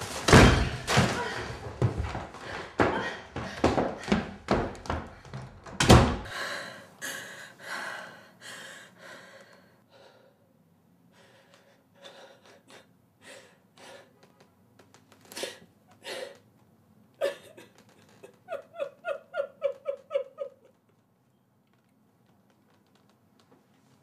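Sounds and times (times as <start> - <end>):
woman sobbing: 17.2 - 20.9.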